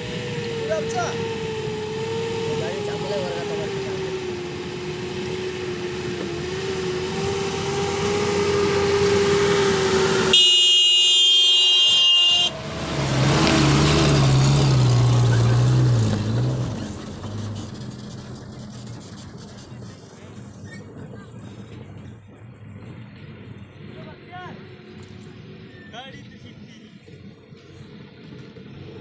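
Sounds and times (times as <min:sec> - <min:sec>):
truck engines running: 0:00.0 - 0:29.0
truck horn: 0:08.0 - 0:12.7.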